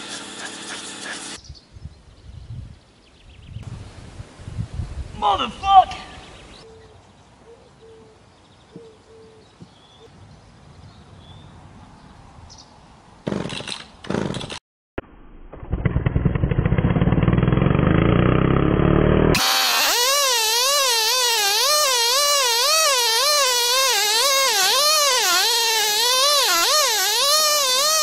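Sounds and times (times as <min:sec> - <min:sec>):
chainsaw cutting whine: 0:15.8 - 0:28.0
chainsaw engine running: 0:15.8 - 0:28.0.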